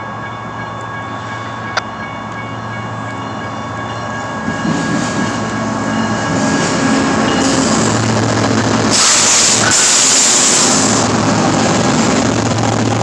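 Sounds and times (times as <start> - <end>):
diesel locomotive rumble: 1.0 - 13.0.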